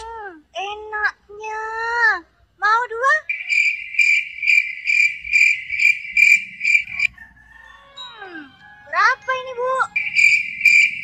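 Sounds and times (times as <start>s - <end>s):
cricket chirping: 3.3s - 7.1s, 10.0s - 11.0s.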